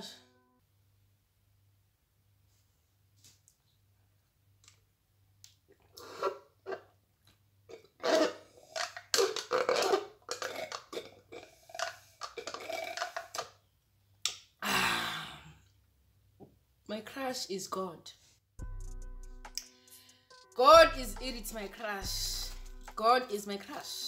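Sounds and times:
slurping through a straw: 5.7s - 6.9s, 7.7s - 13.5s
loud burp: 7.7s - 13.4s.

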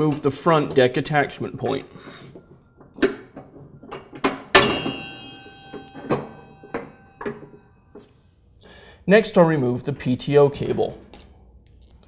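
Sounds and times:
metal clinks and knocks: 0.0s - 8.1s.

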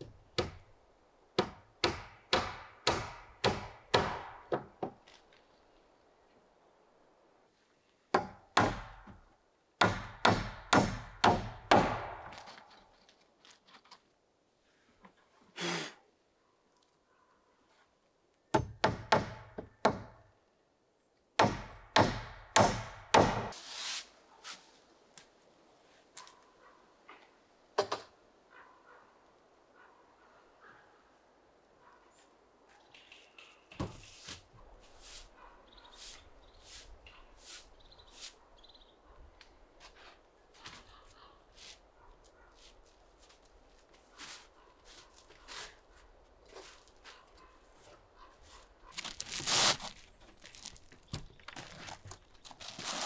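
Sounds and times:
hammer driving nails into wood: 1.4s - 5.0s, 9.8s - 12.6s, 21.4s - 23.6s
short hissing scrape: 23.6s - 24.6s.

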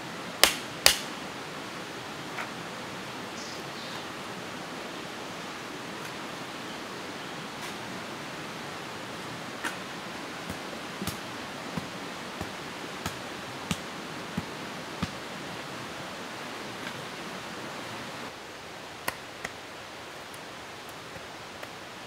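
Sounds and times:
steady rushing background noise: 0.0s - 22.0s
hand tool tapping gravelly ground: 10.5s - 15.2s.

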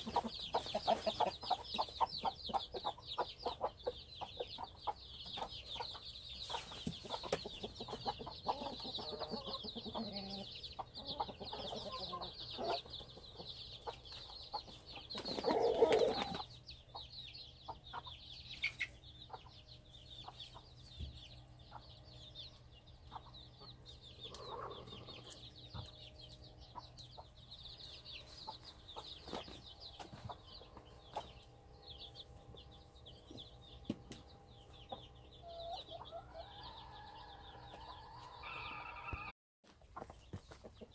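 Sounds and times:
hen clucking: 0.0s - 31.5s, 33.3s - 39.3s
chicks peeping: 0.0s - 40.9s
loud hen call: 37.8s - 39.3s.

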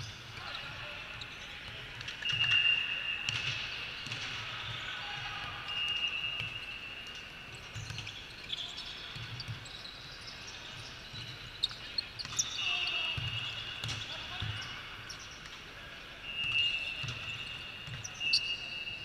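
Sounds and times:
balls bouncing: 3.3s - 15.7s, 16.3s - 18.4s
shoe squeaks: 5.7s - 15.2s, 16.3s - 19.0s.

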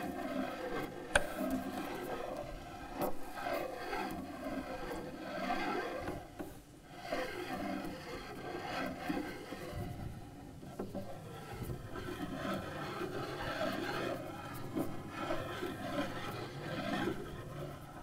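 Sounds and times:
cello bow scraping: 10.9s - 18.0s.

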